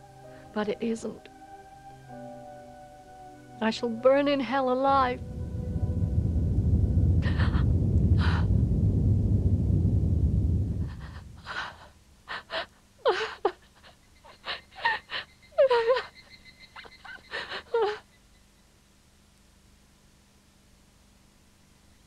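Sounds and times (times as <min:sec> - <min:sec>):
loud low rumble: 0:04.7 - 0:11.9.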